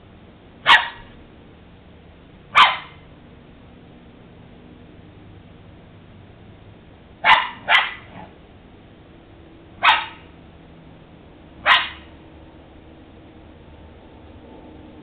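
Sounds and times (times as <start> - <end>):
dog barking: 0.6 - 1.1, 2.5 - 3.0, 7.2 - 8.4, 9.8 - 10.3, 11.6 - 12.1.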